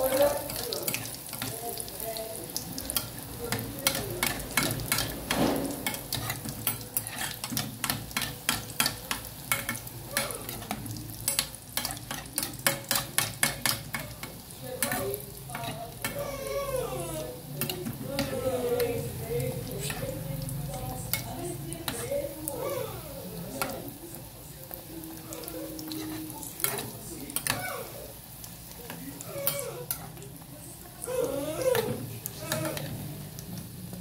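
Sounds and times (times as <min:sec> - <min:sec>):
batter frying in hot oil: 0:00.0 - 0:34.0
metal utensil scraping pot: 0:02.9 - 0:16.6, 0:28.9 - 0:30.2, 0:31.0 - 0:33.0.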